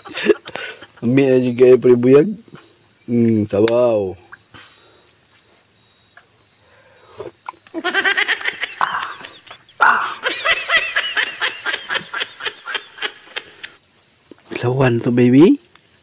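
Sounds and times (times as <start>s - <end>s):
man laughing hard: 0.0s - 1.1s, 7.8s - 13.8s.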